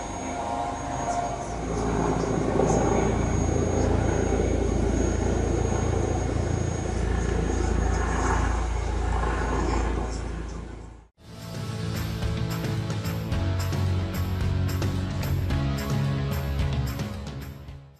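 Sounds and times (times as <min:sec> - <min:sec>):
thin high whine: 0:00.0 - 0:13.2
helicopter rotor noise: 0:00.0 - 0:17.5.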